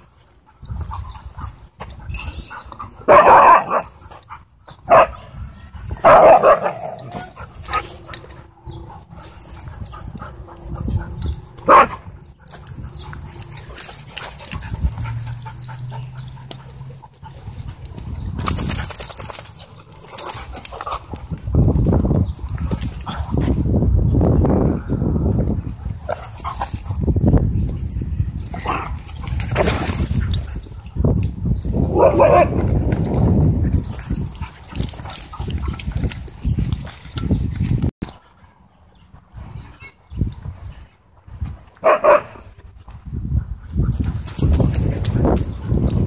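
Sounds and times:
dogs barking: 0:02.5 - 0:05.4, 0:06.0 - 0:17.8, 0:28.5 - 0:30.7, 0:31.9 - 0:32.6, 0:41.8 - 0:42.5.

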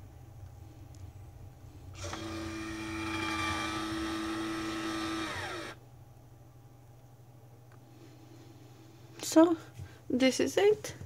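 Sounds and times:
coffee machine pump whining: 0:02.0 - 0:05.8.

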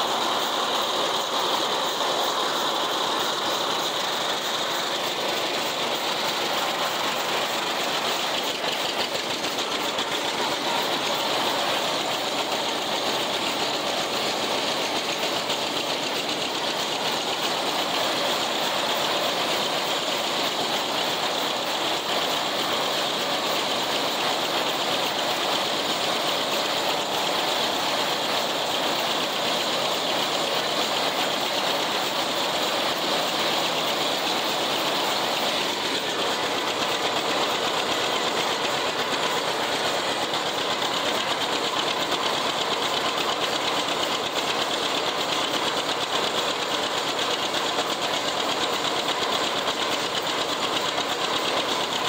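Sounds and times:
haybine cutting mechanism running: 0:00.0 - 0:52.0
tractor engine running: 0:00.0 - 0:52.0.

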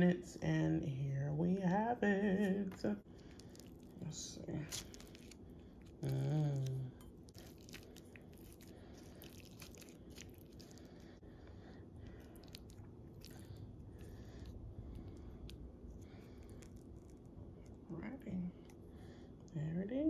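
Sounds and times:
person humming: 0:06.0 - 0:07.0.

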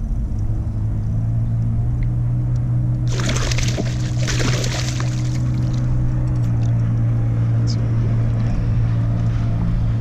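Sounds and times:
boat motor humming: 0:00.5 - 0:10.0
fish thrashing and splashing: 0:03.1 - 0:05.9.

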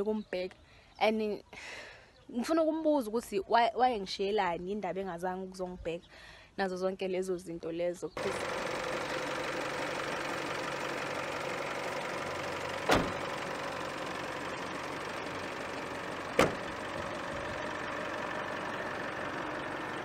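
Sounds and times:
pickup engine idling: 0:08.2 - 0:20.0
sharp thuds: 0:12.8 - 0:13.4, 0:16.3 - 0:16.9.

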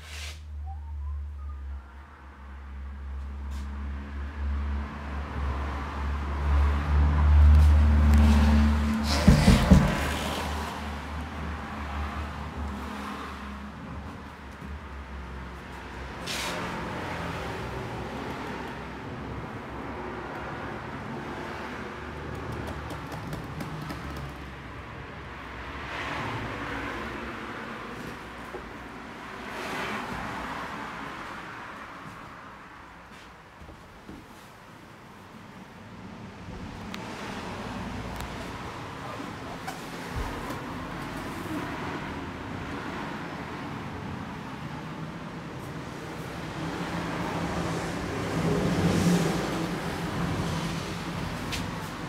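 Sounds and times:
traffic rumble: 0:00.0 - 0:52.0.

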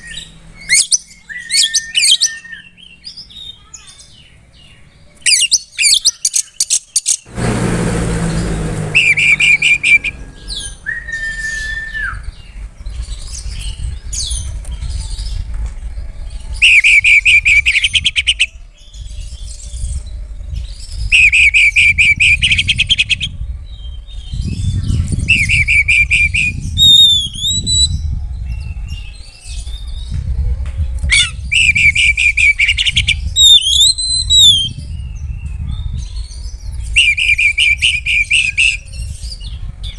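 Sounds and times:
bird singing trills and whistles: 0:00.0 - 0:07.3, 0:08.9 - 0:30.4, 0:31.0 - 0:39.9
brief rushing noise: 0:07.3 - 0:11.9
low rumble: 0:07.3 - 0:16.6.

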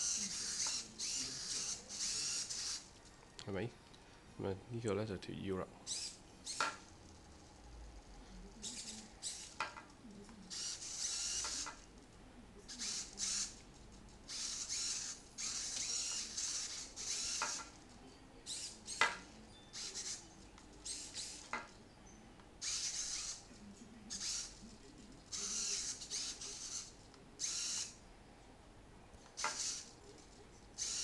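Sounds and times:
robot servos whirring: 0:00.0 - 0:02.9, 0:05.9 - 0:06.9, 0:08.6 - 0:09.6, 0:10.5 - 0:11.8, 0:12.7 - 0:13.6, 0:14.3 - 0:17.8, 0:18.5 - 0:20.2, 0:20.8 - 0:21.5, 0:22.6 - 0:23.5, 0:24.1 - 0:24.6, 0:25.3 - 0:28.0, 0:29.4 - 0:29.9, 0:30.8 - 0:31.0.

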